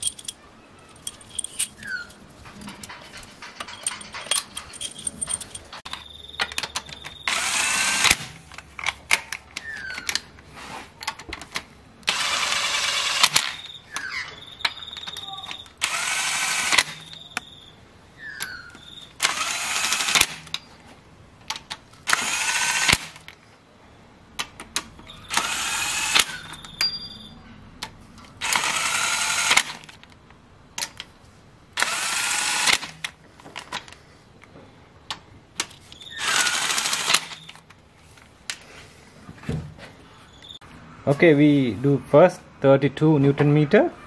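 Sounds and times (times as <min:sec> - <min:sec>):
cordless power tool spinning bolts: 0:07.2 - 0:08.3, 0:12.0 - 0:13.7, 0:15.7 - 0:17.2, 0:19.1 - 0:20.6, 0:22.0 - 0:23.2, 0:25.1 - 0:26.6, 0:28.4 - 0:29.8, 0:31.8 - 0:33.0, 0:36.0 - 0:37.6.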